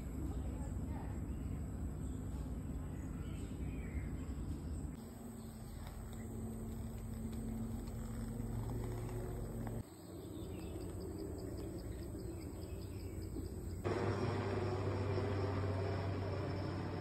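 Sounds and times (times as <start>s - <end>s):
birds: 0.0s - 16.8s
insects: 4.8s - 17.0s
helicopter flying overhead: 13.9s - 17.0s.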